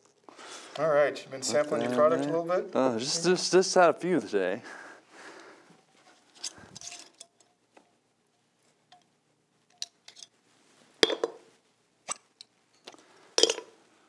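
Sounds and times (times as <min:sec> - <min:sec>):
glassware and bar tools clinking: 0:11.0 - 0:11.4, 0:12.1 - 0:13.8.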